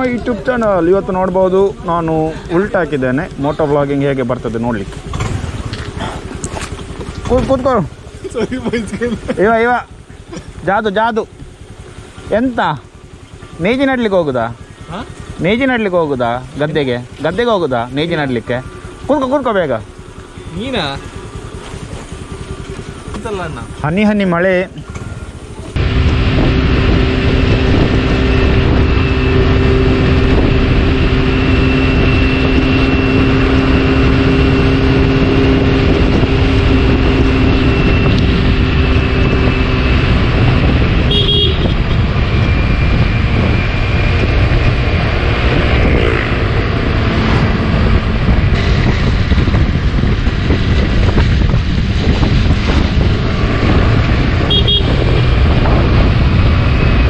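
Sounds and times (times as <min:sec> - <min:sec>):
road noise: 0:00.0 - 0:57.0
scooter engine: 0:00.0 - 0:57.0
wind rush on microphone: 0:25.0 - 0:57.0
high horn toots: 0:40.9 - 0:42.1, 0:54.4 - 0:55.3.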